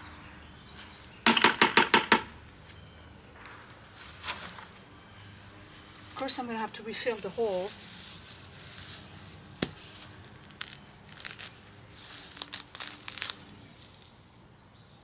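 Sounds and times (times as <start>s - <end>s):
leaves rustling: 3.4s - 5.0s, 5.6s - 14.4s
soil and roots tearing: 7.5s - 14.2s.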